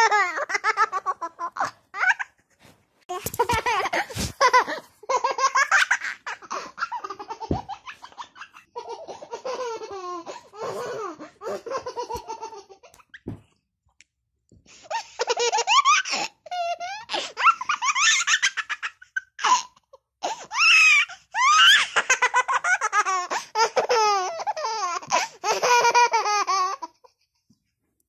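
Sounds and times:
high-pitched laughing: 3.1s - 12.6s.

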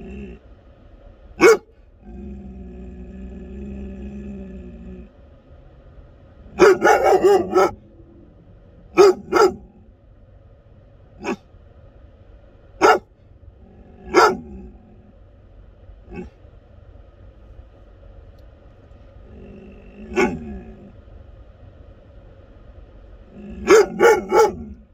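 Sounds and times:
steady low hum: 0.0s - 24.9s
puppy barking: 1.4s - 1.7s, 6.5s - 7.9s, 8.9s - 9.8s, 11.2s - 11.4s, 12.8s - 13.1s, 14.0s - 14.6s, 20.1s - 20.6s, 23.5s - 24.8s.

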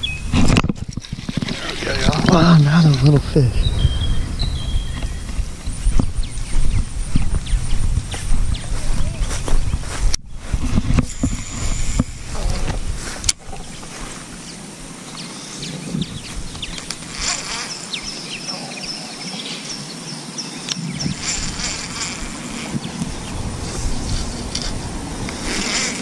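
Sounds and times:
low rumble: 2.1s - 10.1s.

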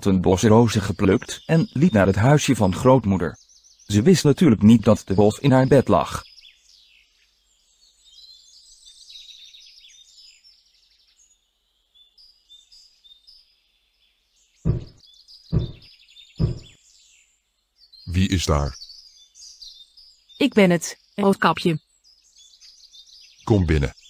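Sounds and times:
birds chirping faintly: 0.0s - 24.0s
knocks on wooden door: 14.7s - 16.7s.

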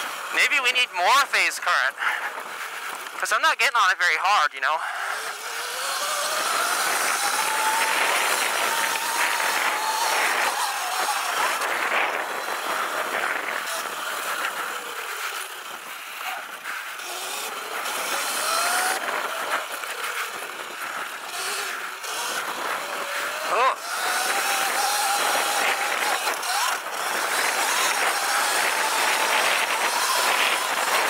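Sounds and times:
electric motor whining: 4.9s - 31.0s.

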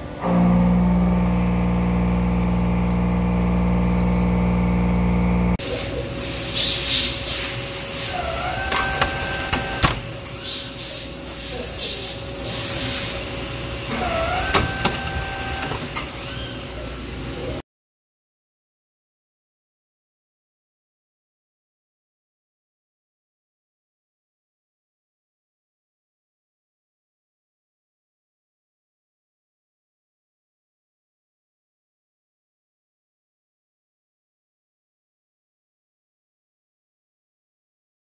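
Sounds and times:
machine cutter humming: 0.0s - 6.3s, 7.2s - 13.0s, 13.7s - 16.2s
short dipping whines: 0.1s - 5.6s
coolant spray hissing: 0.4s - 17.6s.

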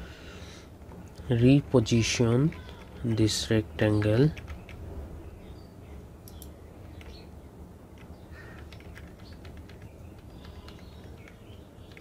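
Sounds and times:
low background hum: 0.0s - 12.0s
computer mouse clicks: 6.2s - 7.2s, 8.0s - 12.0s.

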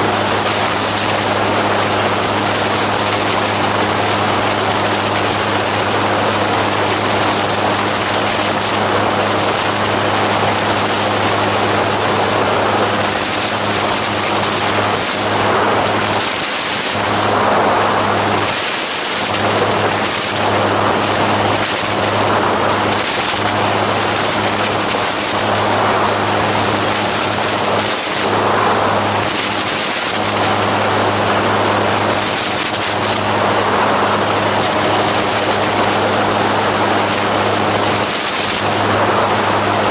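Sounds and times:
gyroplane engine and propeller drone: 0.0s - 39.9s
rush of air: 9.8s - 39.9s.

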